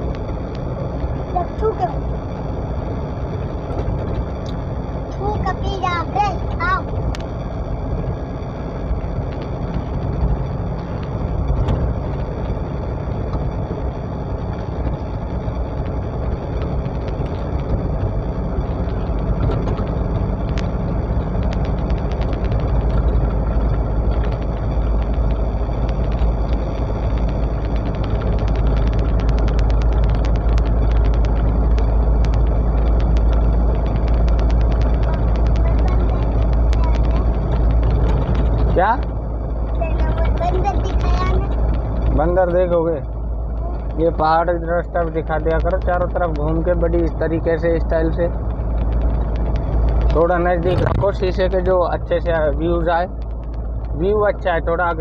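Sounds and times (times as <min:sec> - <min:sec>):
road and engine noise: 0:00.0 - 0:55.0
light rattling ticks: 0:14.5 - 0:55.0.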